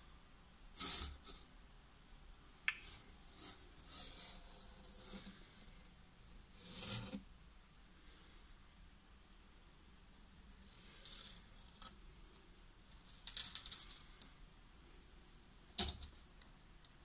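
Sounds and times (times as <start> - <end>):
crackly scraping on cardboard: 0.8 - 1.5, 2.8 - 7.3.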